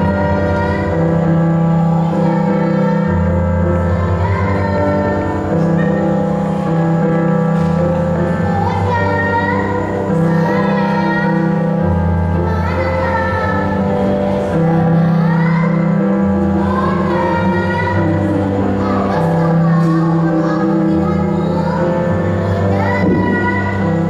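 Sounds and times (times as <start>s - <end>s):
sustained chords: 0.0s - 24.0s
voice singing sliding notes: 0.0s - 24.0s
held bass notes: 16.2s - 24.0s.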